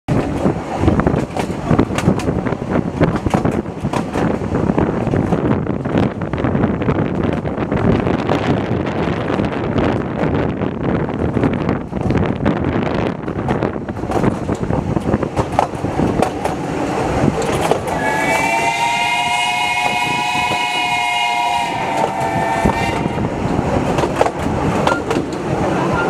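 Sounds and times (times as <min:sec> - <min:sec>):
wheels clicking on rail joints: 0:00.1 - 0:08.2, 0:09.3 - 0:21.1, 0:21.8 - 0:26.0
steam locomotive whistle: 0:17.9 - 0:23.3.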